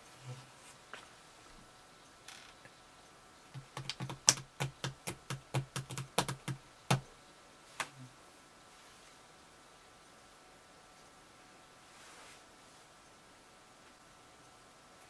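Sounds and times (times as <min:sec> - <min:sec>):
sculpting tools clicking and tapping: 0:03.5 - 0:07.1.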